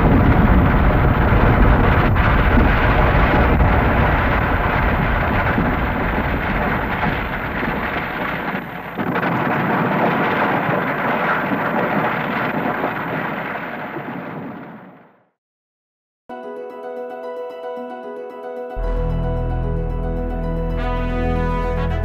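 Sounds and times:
rushing noise: 0.0 - 10.0
deep rumbling: 0.0 - 13.2, 18.8 - 22.0.

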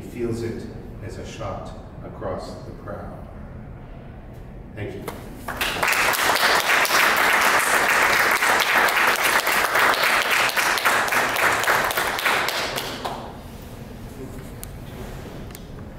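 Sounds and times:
audience applauding: 5.4 - 13.4.

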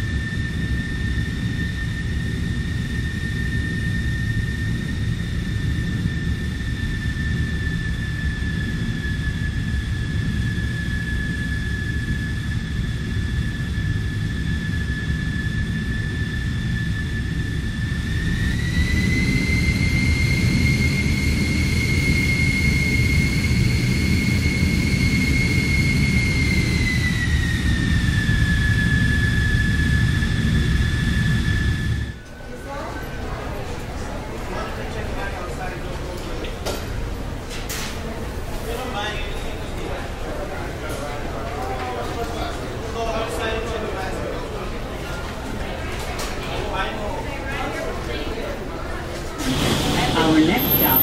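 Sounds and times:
jet engine rumble: 0.0 - 35.7, 47.2 - 51.0
jet engine whine: 0.0 - 51.0.

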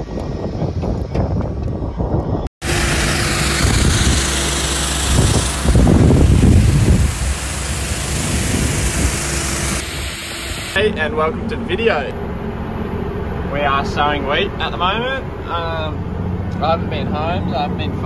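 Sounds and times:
wind noise on microphone: 0.0 - 4.3, 5.0 - 10.6
tractor engine hum: 2.6 - 18.0.

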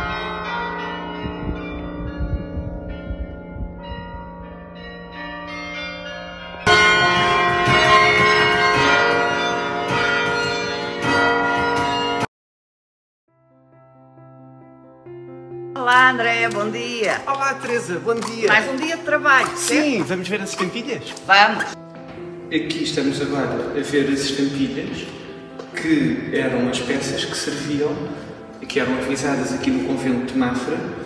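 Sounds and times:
carillon bells playing a tune: 0.0 - 12.2.

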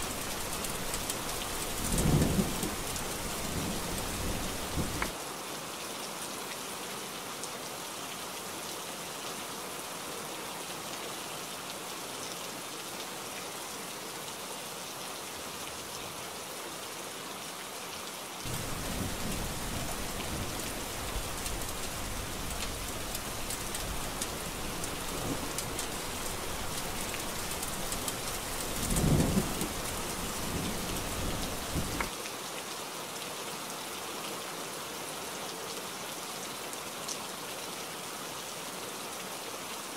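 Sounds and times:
thunder rumbling: 0.0 - 5.1, 18.5 - 32.1
heavy rain falling: 0.0 - 5.2, 18.4 - 32.6.

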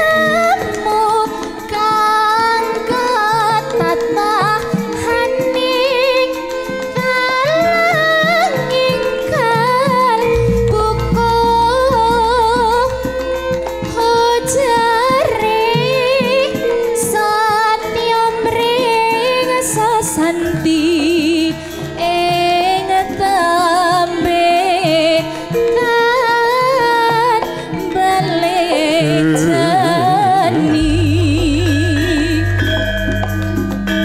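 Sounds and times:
woman singing into a microphone: 0.0 - 34.0
gamelan accompaniment: 2.4 - 17.0, 23.6 - 34.0.

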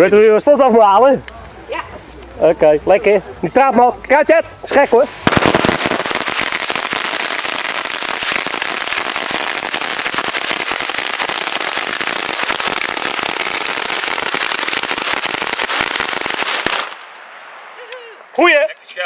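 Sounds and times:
string of firecrackers rattling: 4.7 - 17.4.

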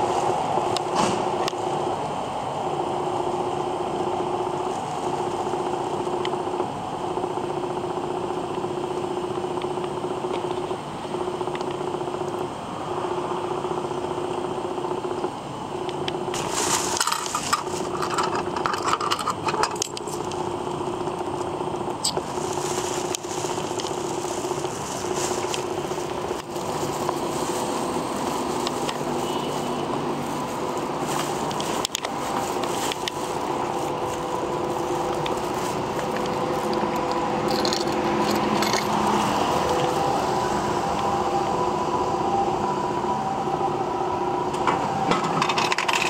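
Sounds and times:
steady hum: 0.0 - 46.0
vending machine coin clicks and rattles: 16.9 - 20.2, 37.5 - 39.0, 45.4 - 46.0.

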